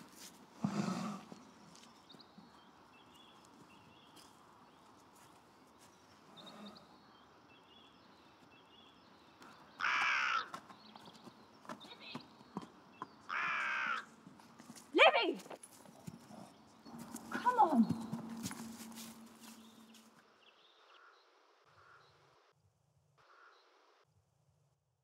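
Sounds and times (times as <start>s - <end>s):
crow cawing: 9.8s - 10.6s, 13.3s - 14.1s, 21.7s - 22.1s, 23.3s - 23.6s.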